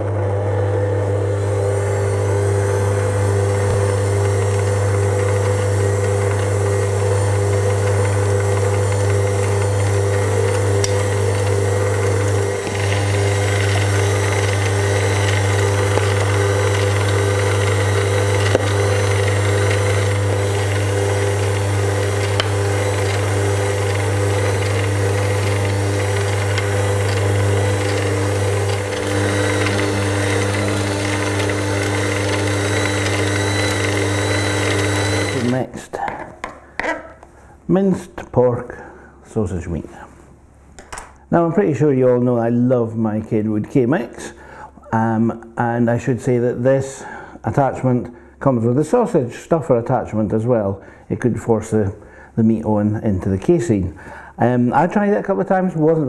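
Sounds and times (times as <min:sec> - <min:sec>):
stand mixer mincing meat: 0:00.0 - 0:35.6.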